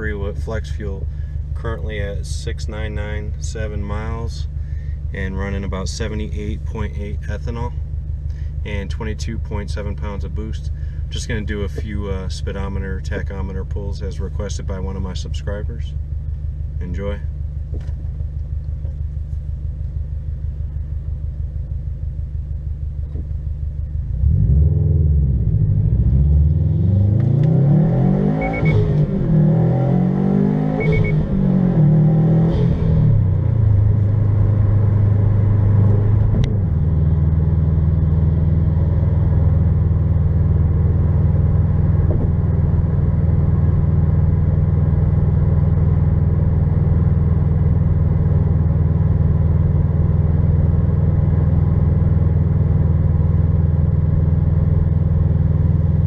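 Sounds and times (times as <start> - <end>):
car engine accelerating through gears: 23.0 - 56.0.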